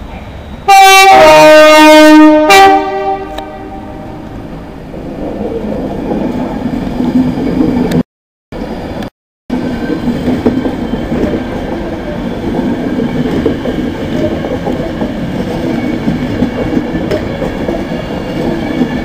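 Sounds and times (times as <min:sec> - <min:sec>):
train rumbling: 0:00.0 - 0:08.0, 0:08.6 - 0:19.0
three-tone train horn: 0:00.7 - 0:04.4.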